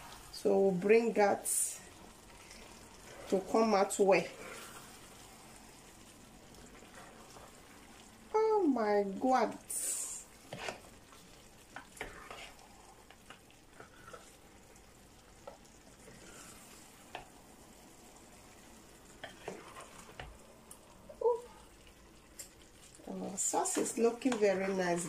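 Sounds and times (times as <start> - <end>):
faint frying sizzle: 0.0 - 25.0
spatula scraping frying pan: 9.7 - 11.0, 11.7 - 12.7, 13.3 - 14.4, 15.4 - 17.2, 19.2 - 20.3.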